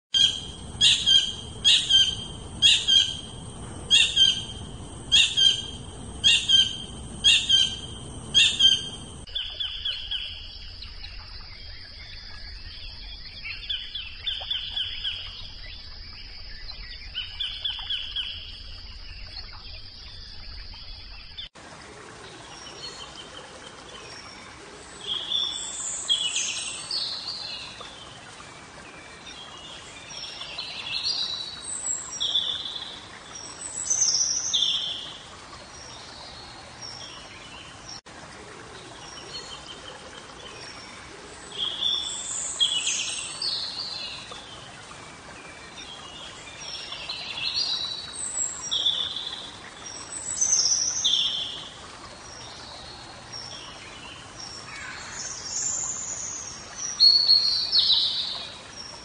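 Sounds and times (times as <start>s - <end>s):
kingfisher harsh calls: 0.2s - 9.0s.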